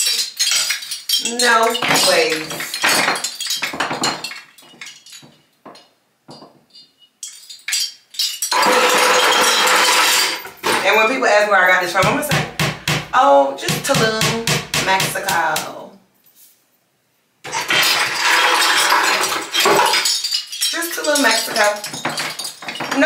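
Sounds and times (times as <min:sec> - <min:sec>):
small hard objects clinking: 0:00.0 - 0:11.0, 0:17.5 - 0:23.0.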